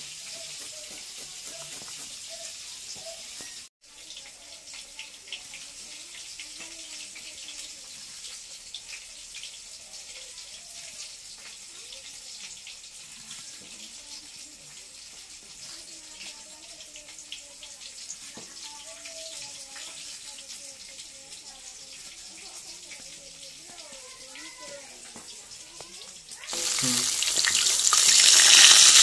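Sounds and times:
fish frying in hot oil: 0.0 - 29.0.

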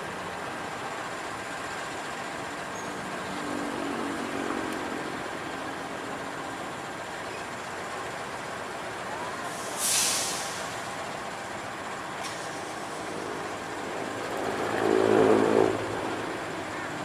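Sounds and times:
diesel locomotive running: 0.0 - 17.0
air hiss: 9.5 - 10.7.

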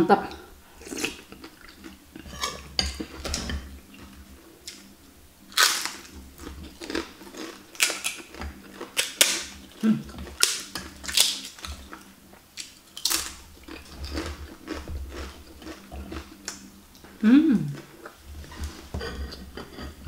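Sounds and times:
crunchy food being chewed: 0.8 - 4.9, 5.5 - 17.0.

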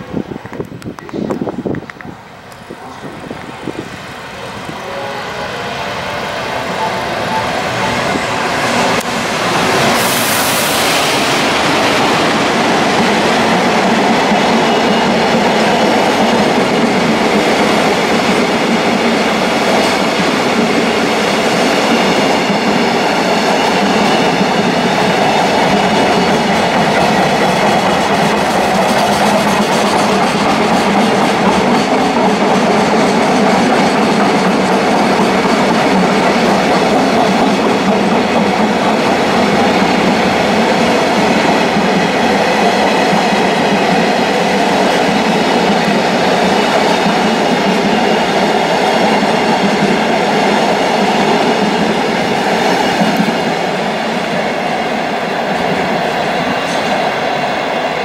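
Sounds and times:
train wheels on rails: 0.0 - 58.0.

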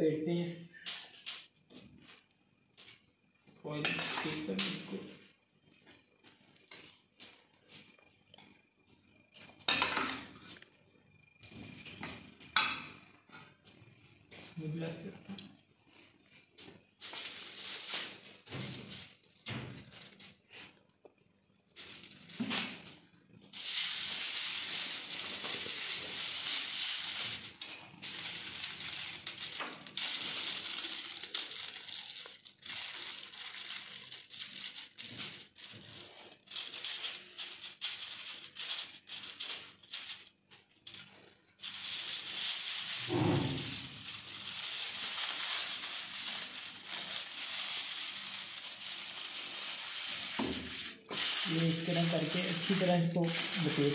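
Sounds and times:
aluminium foil crinkling: 16.9 - 20.7, 21.7 - 53.9.

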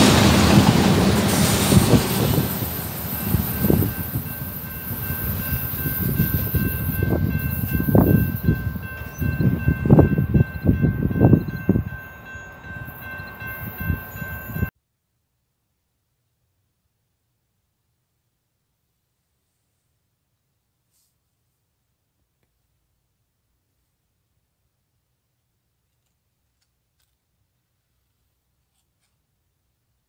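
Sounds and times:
train thumps: 0.0 - 5.0
train wheel rumble: 0.0 - 14.7
high-pitched ringing: 2.4 - 14.7.

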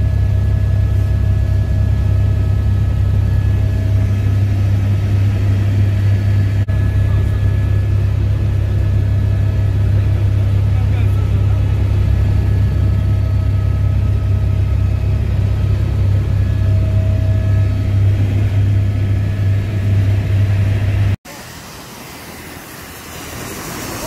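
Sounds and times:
faint steady whines: 0.0 - 24.0
helicopter rotors and turbine drone: 0.0 - 24.0.

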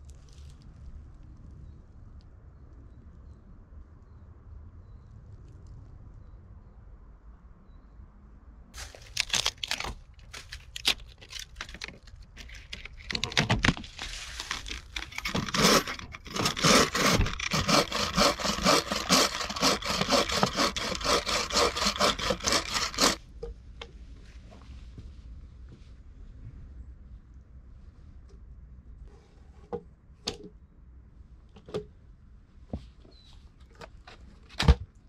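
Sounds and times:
bow saw cutting log: 13.8 - 23.2.

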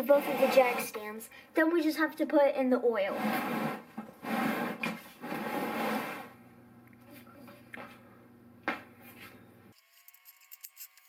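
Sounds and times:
plastic pan scraping on concrete: 0.0 - 1.1, 3.0 - 6.4.

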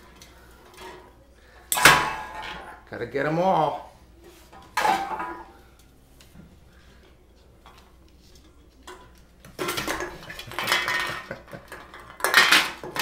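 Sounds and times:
cans clattering on the floor: 4.6 - 5.5, 8.9 - 13.0.

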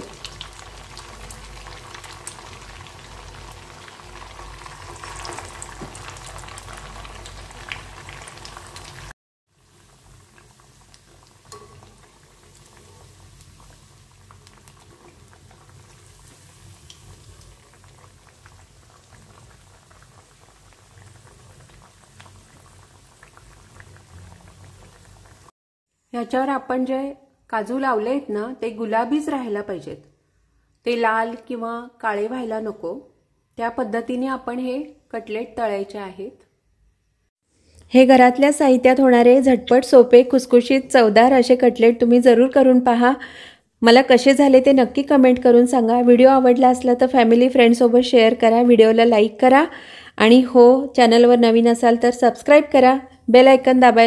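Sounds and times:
oil sizzling in deep-frying: 0.0 - 25.6, 37.3 - 54.0.

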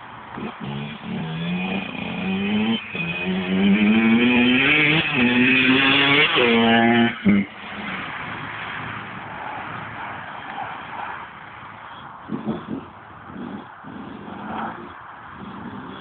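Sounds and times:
dirt bike engine revving: 0.0 - 16.0.

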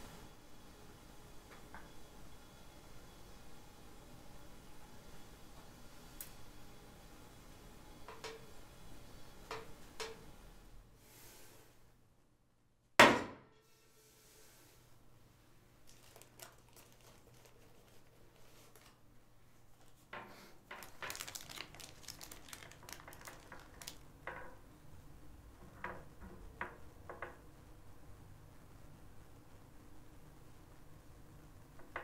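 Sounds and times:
baking paper crinkling: 15.8 - 19.1, 20.7 - 24.1.

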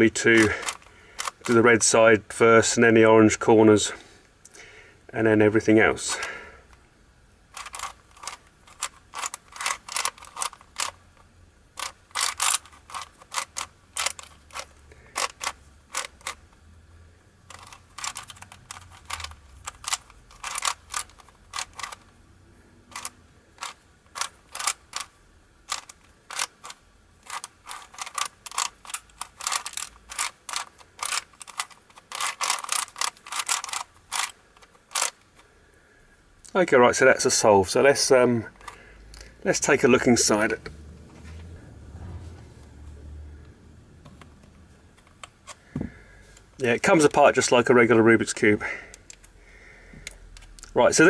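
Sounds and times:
puzzle cube layers clicking: 7.5 - 11.0, 11.8 - 16.4, 17.5 - 22.0, 22.9 - 25.1, 25.7 - 35.2.

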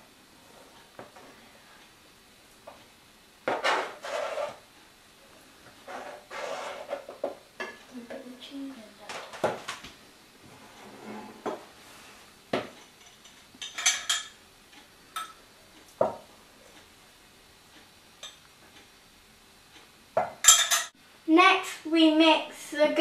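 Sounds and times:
knife scraping a chopping board: 3.6 - 4.6, 5.8 - 7.1.

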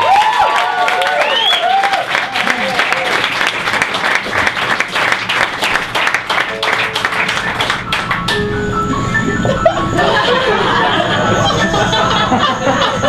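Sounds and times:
audience applauding: 0.0 - 8.5
music with held notes: 6.5 - 13.0.

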